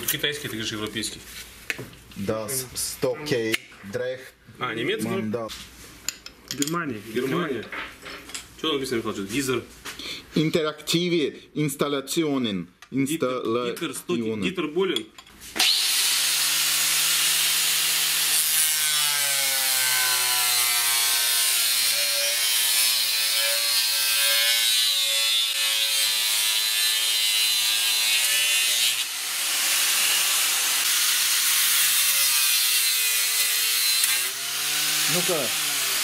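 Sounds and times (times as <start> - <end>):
angle grinder cutting wood: 15.6 - 36.0.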